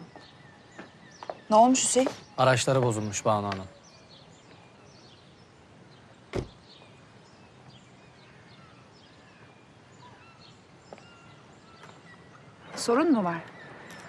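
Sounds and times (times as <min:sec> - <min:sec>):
birds chirping: 0:00.0 - 0:14.0
sharp thump: 0:06.3 - 0:06.6.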